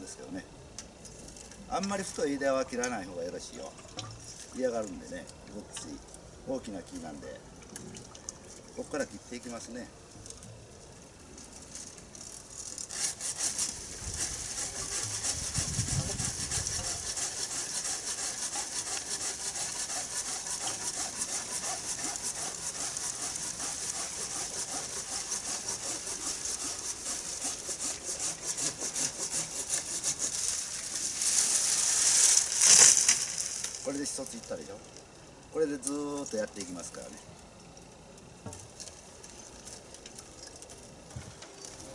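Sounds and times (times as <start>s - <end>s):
pruning saw cutting branch: 12.2s - 34.8s.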